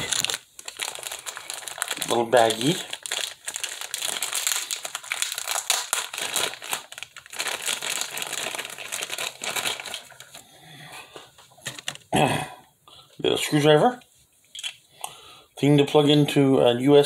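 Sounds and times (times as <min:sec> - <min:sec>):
plastic bag crinkling: 0:00.0 - 0:10.4.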